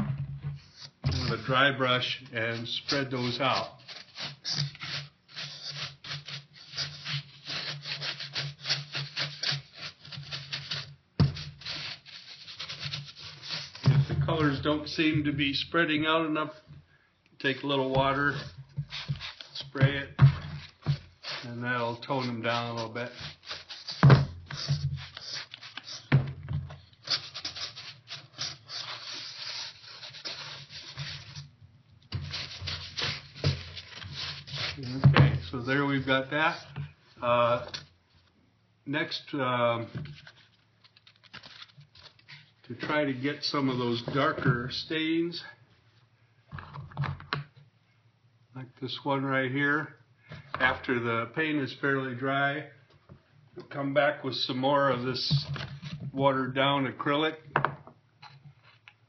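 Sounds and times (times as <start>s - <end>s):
paintbrush scrubbing on foam: 0.6s - 15.1s, 17.4s - 37.9s.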